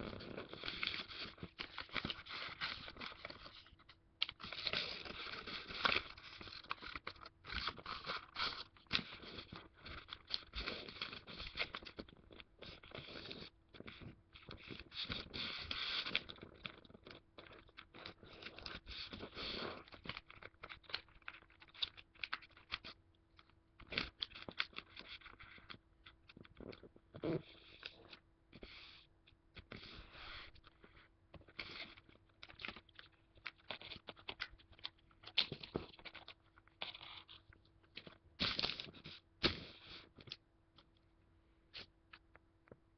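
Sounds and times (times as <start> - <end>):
paper crinkling and rustling: 0.0 - 26.9.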